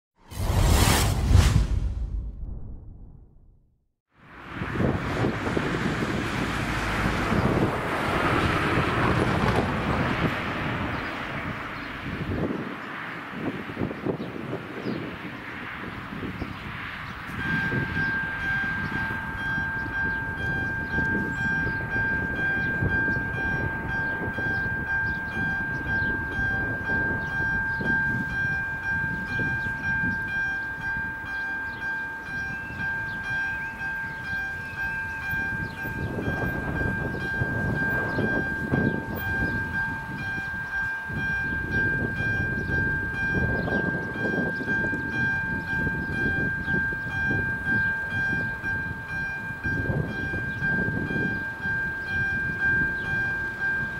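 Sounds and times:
electronic crossing warning bell: 0:17.3 - 0:53.9.

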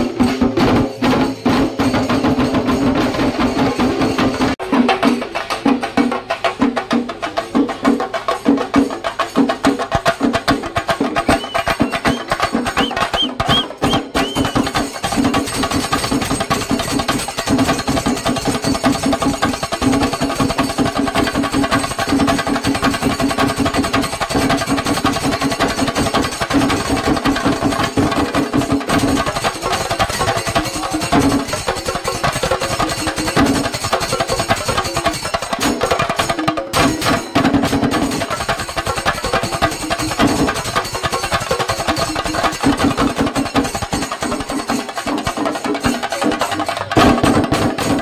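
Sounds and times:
cymbals: 0:00.0 - 0:48.0
drums beaten with sticks: 0:00.0 - 0:48.0
high whistle-like notes: 0:11.1 - 0:15.4.

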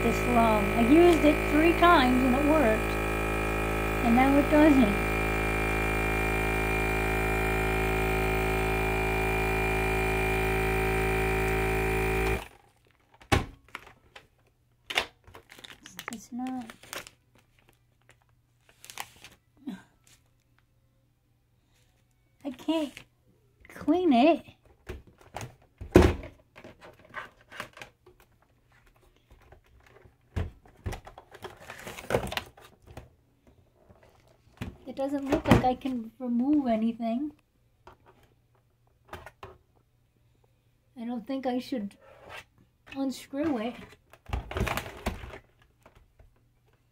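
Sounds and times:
vacuum sealer pump humming: 0:00.0 - 0:12.6
plastic bag rustling: 0:15.2 - 0:19.5.

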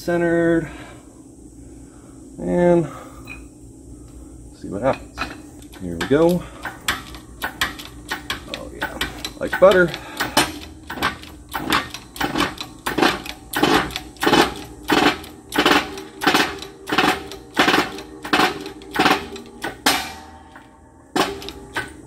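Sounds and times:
hydraulic press handle clacking: 0:04.9 - 0:22.0.

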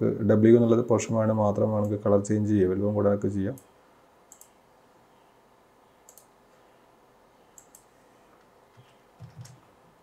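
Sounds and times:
computer mouse clicks: 0:04.3 - 0:04.6, 0:06.0 - 0:06.3, 0:07.5 - 0:09.6.

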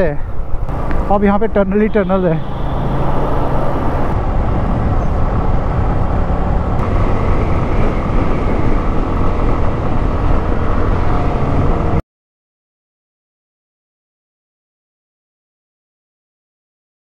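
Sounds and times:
motorcycle engine drone: 0:00.0 - 0:12.0
wind rush on microphone: 0:00.0 - 0:12.0.

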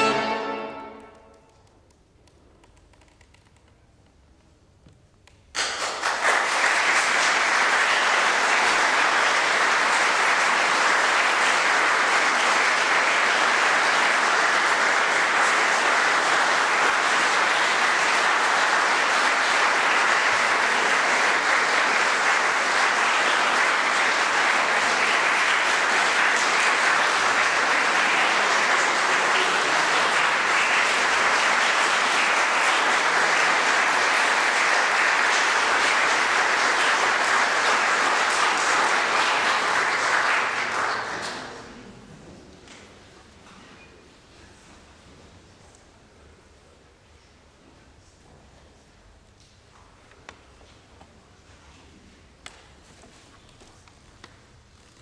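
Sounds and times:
audience applause: 0:00.0 - 0:01.2, 0:05.6 - 0:41.9.

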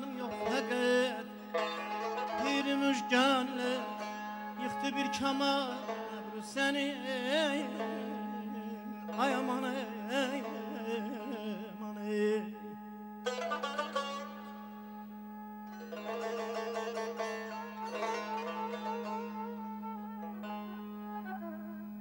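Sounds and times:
man singing with trills: 0:00.0 - 0:15.2
string instruments drone: 0:00.0 - 0:22.0.

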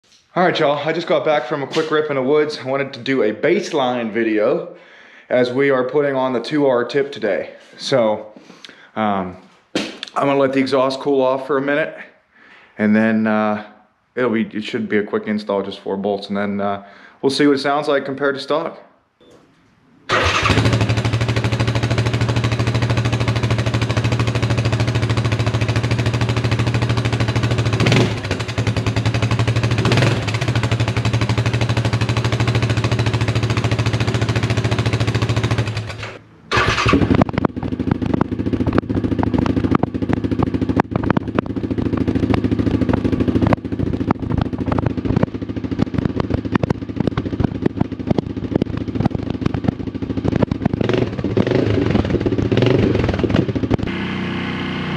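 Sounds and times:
engine revving blips: 0:50.4 - 0:54.9.

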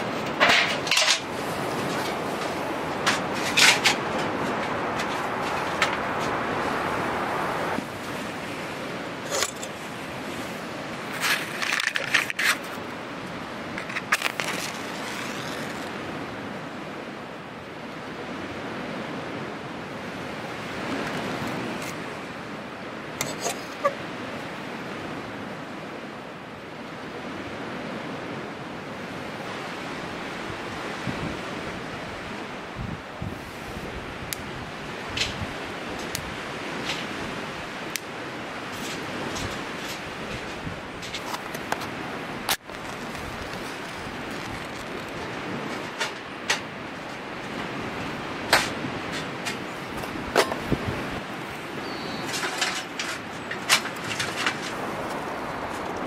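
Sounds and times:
lake waves rushing: 0:00.0 - 0:56.0
wind: 0:00.0 - 0:56.0
gear clinking and rustling: 0:42.5 - 0:46.3.

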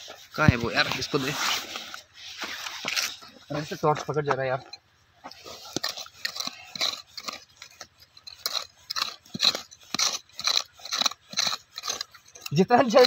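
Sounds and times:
hand tool scraping stony ground: 0:00.0 - 0:13.0.

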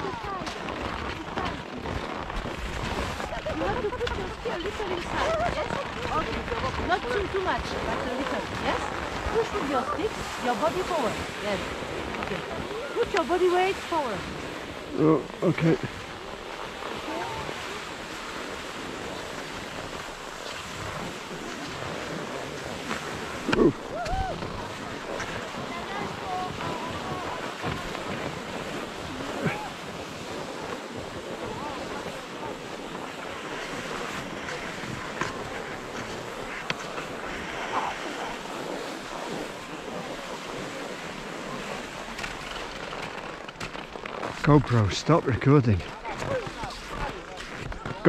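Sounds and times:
wind on microphone: 0:00.0 - 0:44.8
skis gliding over snow: 0:00.0 - 0:48.0.

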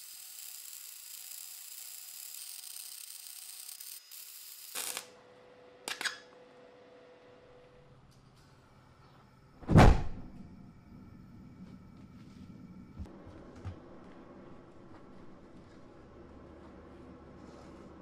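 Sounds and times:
welding hiss and crackle: 0:00.0 - 0:05.1
gas forge lighting whump: 0:09.6 - 0:10.6.

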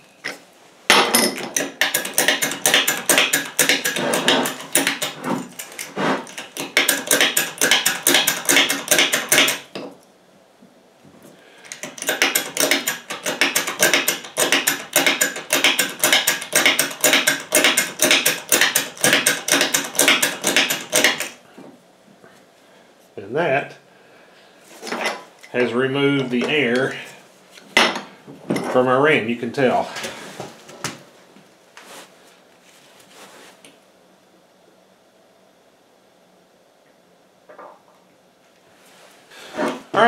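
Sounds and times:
jack pump sharp metallic clicks: 0:01.4 - 0:09.8, 0:11.7 - 0:21.4.

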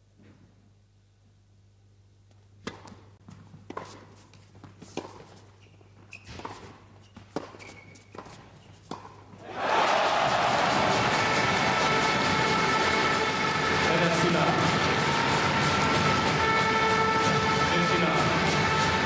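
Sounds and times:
racket striking tennis ball: 0:02.6 - 0:05.5, 0:06.2 - 0:09.6
ball bouncing on court: 0:06.2 - 0:09.2
crowd applause: 0:09.4 - 0:19.0.

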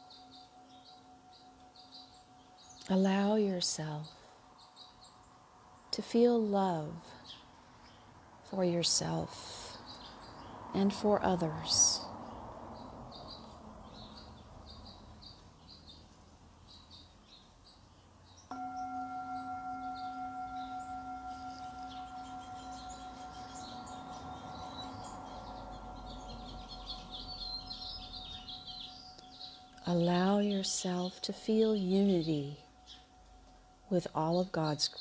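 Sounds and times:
singing bowl ringing: 0:00.0 - 0:05.0, 0:18.5 - 0:35.0
small birds chirping: 0:00.0 - 0:08.2, 0:08.8 - 0:35.0.

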